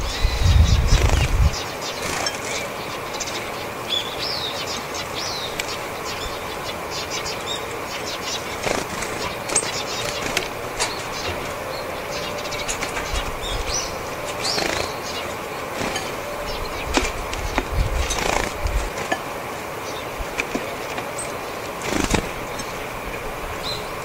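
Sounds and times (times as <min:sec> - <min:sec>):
bird call notes: 0:00.0 - 0:24.0
bird wings fluttering: 0:00.7 - 0:02.8, 0:08.3 - 0:11.6, 0:12.6 - 0:19.2, 0:20.2 - 0:22.8.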